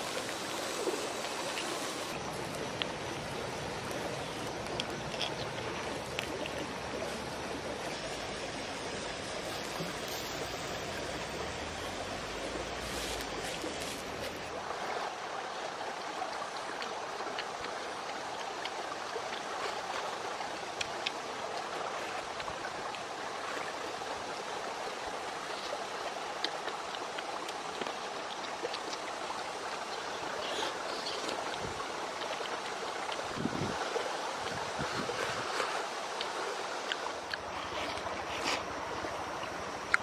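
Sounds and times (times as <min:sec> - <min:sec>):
stream water flowing: 0:00.0 - 0:40.0
mouth sounds eating oysters: 0:34.8 - 0:40.0.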